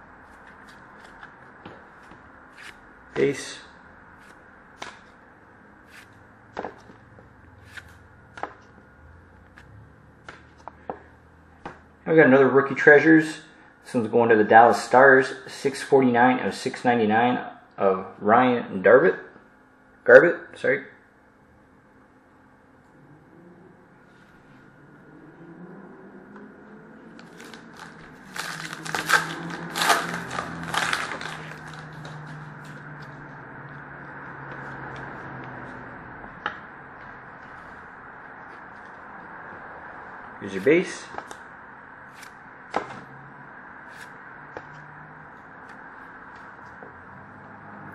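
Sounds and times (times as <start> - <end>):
foil wrapper crinkling and tearing: 27.2 - 32.8.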